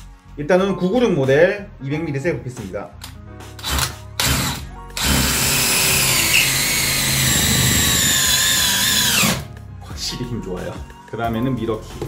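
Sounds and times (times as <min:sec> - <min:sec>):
hammer drill driving screw: 0:03.6 - 0:09.4.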